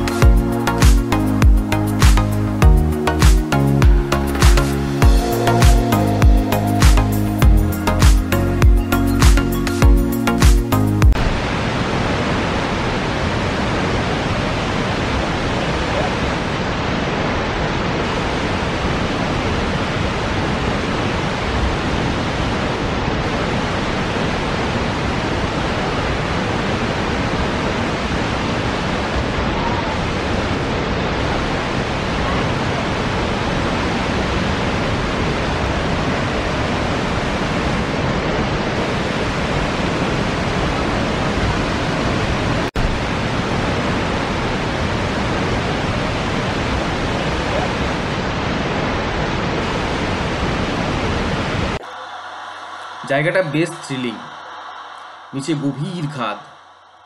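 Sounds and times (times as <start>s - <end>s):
roar of falling water: 11.2s - 56.7s.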